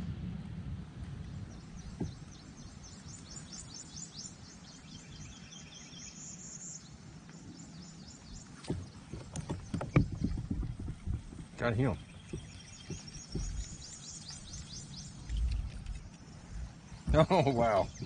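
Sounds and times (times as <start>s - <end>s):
bird chirping: 1.4s - 18.0s
low background rumble: 7.8s - 18.0s
sharp knocks: 8.6s - 14.0s.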